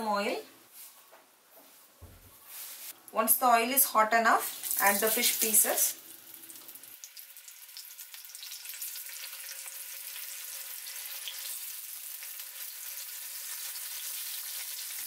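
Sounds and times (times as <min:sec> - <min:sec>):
fish sizzling in hot oil: 0:04.5 - 0:15.0.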